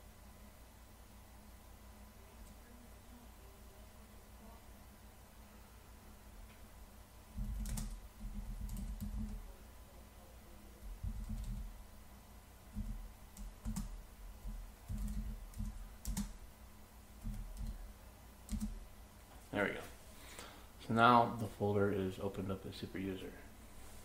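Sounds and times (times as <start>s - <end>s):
typing on a computer keyboard: 7.4s - 9.4s, 11.0s - 11.7s, 12.8s - 16.4s, 17.2s - 17.8s, 18.5s - 18.8s.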